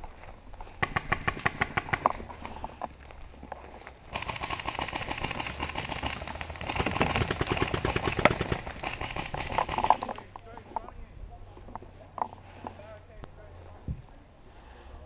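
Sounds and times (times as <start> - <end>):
paintball marker rapid firing: 0.8 - 2.6, 4.1 - 10.2.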